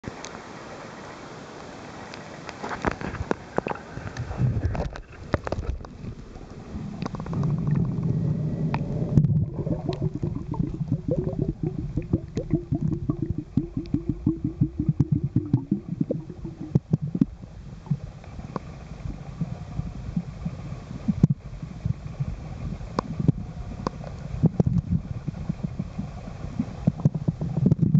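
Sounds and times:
muffled underwater rumble and gurgling: 0:02.9 - 0:27.9
rapid low pulses: 0:06.2 - 0:18.2.

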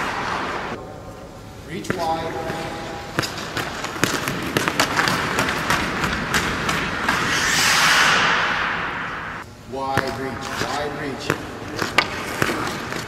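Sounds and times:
skate blades scraping ice: 0:02.5 - 0:08.5, 0:10.4 - 0:13.0
hissing scrape of blades on ice: 0:07.0 - 0:08.5.

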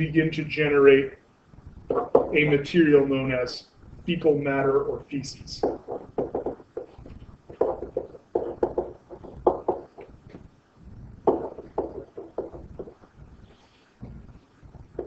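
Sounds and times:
stylus tapping on a tablet: 0:01.9 - 0:02.4, 0:05.6 - 0:10.4, 0:11.2 - 0:13.0.

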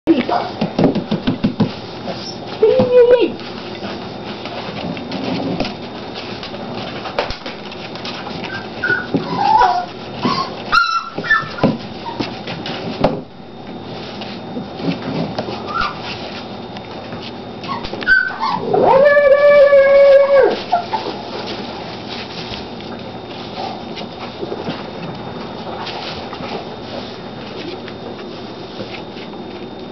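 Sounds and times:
puppy whining loudly: 0:08.4 - 0:12.3, 0:15.6 - 0:16.1, 0:17.6 - 0:21.2
puppies whimpering and yipping: 0:08.4 - 0:12.4, 0:15.6 - 0:16.2, 0:17.6 - 0:21.2.

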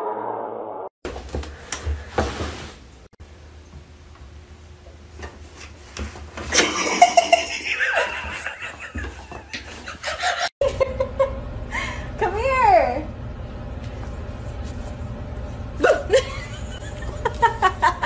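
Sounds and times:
person laughing: 0:06.6 - 0:12.0, 0:15.8 - 0:18.0.

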